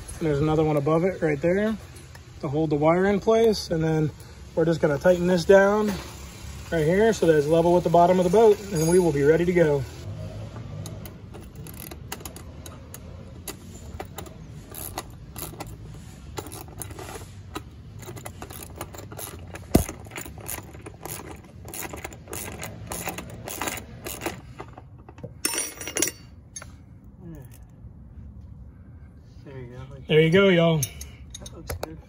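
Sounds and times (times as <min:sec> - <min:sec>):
wrenches clinking on metal bolts: 0:07.3 - 0:09.5, 0:10.6 - 0:26.8, 0:30.6 - 0:32.0.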